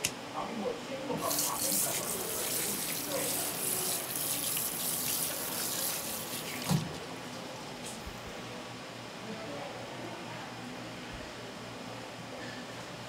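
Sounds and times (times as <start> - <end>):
tap water running from hose: 1.2 - 7.4.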